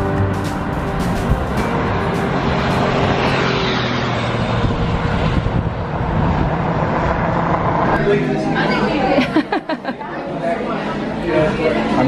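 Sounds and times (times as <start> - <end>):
vehicle running: 0.0 - 8.8.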